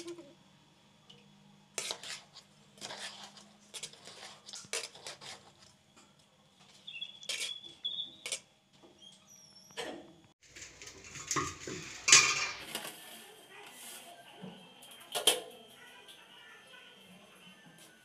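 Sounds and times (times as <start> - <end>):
metal spoon scraping a pot: 1.8 - 5.7, 7.2 - 8.4, 10.4 - 12.6.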